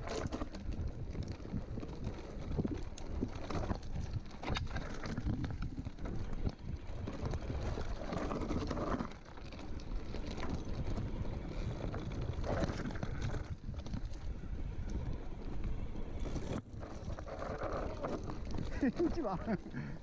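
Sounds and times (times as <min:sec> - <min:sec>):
wind buffeting microphone: 0:00.0 - 0:08.9
tyres rumbling on rocks: 0:00.0 - 0:20.0.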